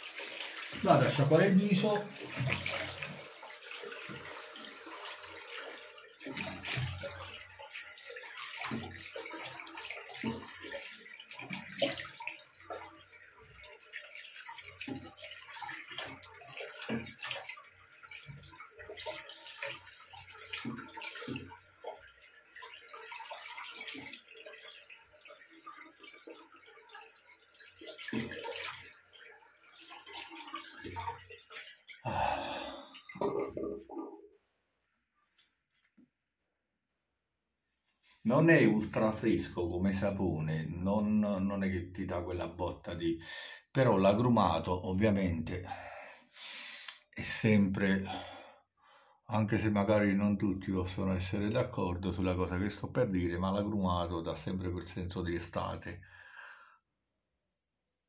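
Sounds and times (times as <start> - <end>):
water splashing: 0.0 - 34.3
running tap water: 0.0 - 35.8, 38.1 - 48.4, 49.4 - 56.6.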